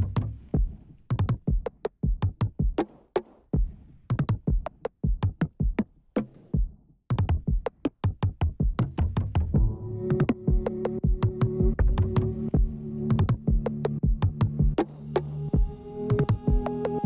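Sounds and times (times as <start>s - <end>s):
electronic music with drum-machine beat: 8.7s - 17.0s.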